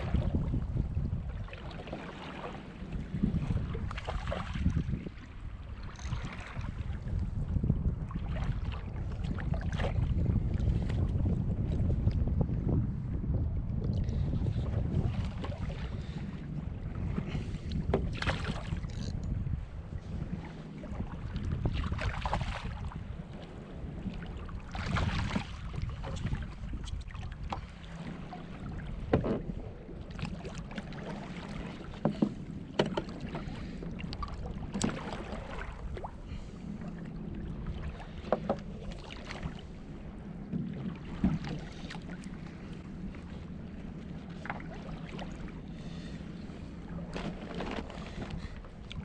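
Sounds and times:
water sloshing against hull: 0.0 - 49.0
wind on microphone: 0.0 - 49.0
sharp knocks and clicks: 32.1 - 33.1.

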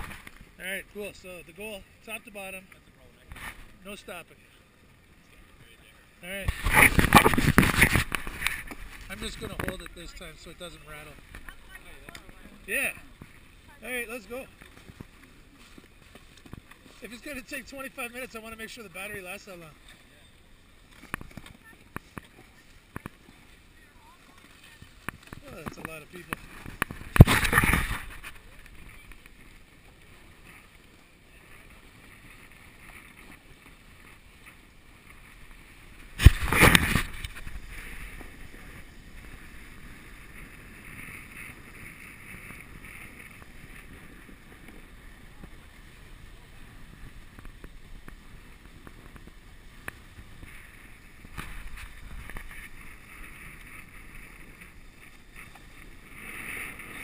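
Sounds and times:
glove rubbing on camera: 6.4 - 9.8, 36.0 - 44.1
snow scraping under skis: 24.3 - 29.5, 30.1 - 57.0.

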